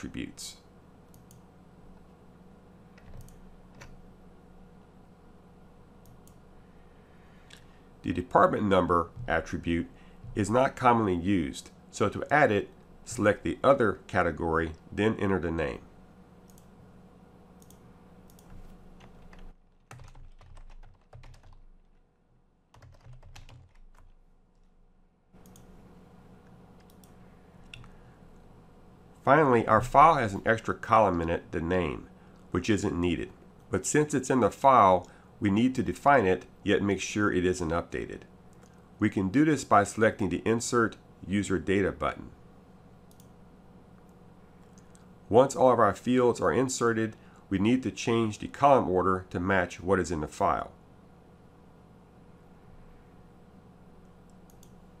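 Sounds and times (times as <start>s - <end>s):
low steady hum: 0.0s - 55.0s
computer mouse clicks: 1.1s - 1.4s, 2.9s - 4.0s, 16.4s - 16.7s, 17.6s - 19.4s, 25.4s - 25.7s, 26.8s - 28.0s, 43.1s - 43.3s, 54.2s - 54.8s
faint keyboard typing: 1.1s - 2.1s, 2.9s - 4.0s, 9.1s - 9.6s, 17.6s - 22.1s, 22.7s - 25.8s, 26.4s - 28.0s, 43.0s - 45.1s, 54.0s - 54.9s.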